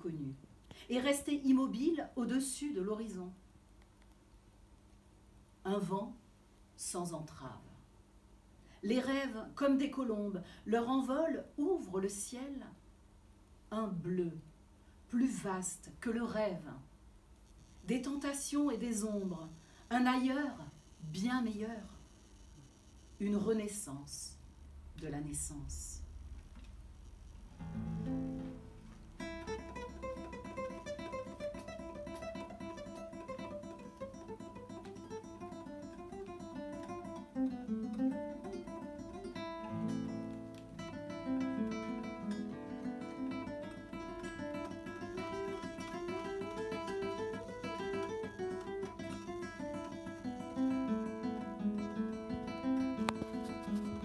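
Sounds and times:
acoustic guitar plucked melody: 0:27.6 - 0:54.0.

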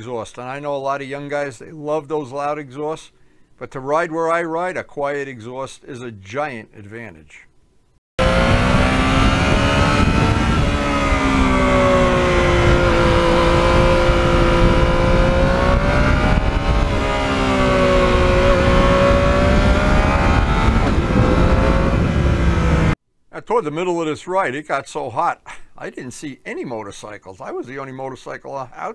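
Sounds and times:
motorcycle engine revving: 0:08.2 - 0:23.0
wind rushing: 0:08.2 - 0:23.0.

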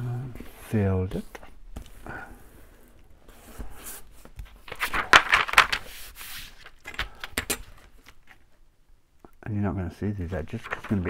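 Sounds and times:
paper crackling and rustling: 0:03.4 - 0:08.5, 0:10.4 - 0:11.0.

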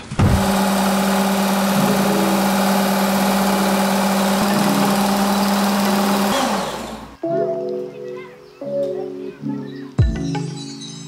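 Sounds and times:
electric knife sharpener running: 0:00.0 - 0:07.2.

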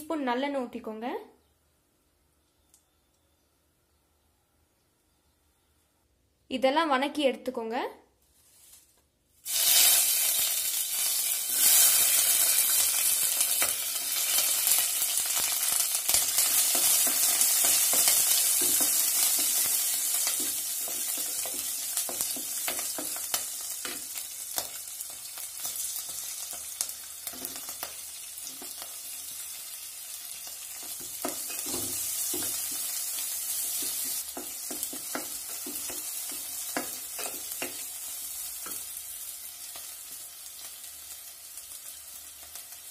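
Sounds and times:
vegetables sizzling in oil: 0:09.4 - 0:42.9.

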